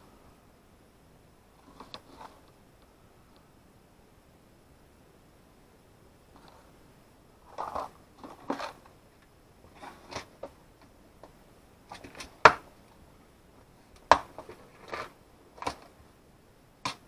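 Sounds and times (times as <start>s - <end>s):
plastic box clicks and clatter: 7.5s - 8.9s, 11.9s - 12.7s, 14.0s - 15.9s.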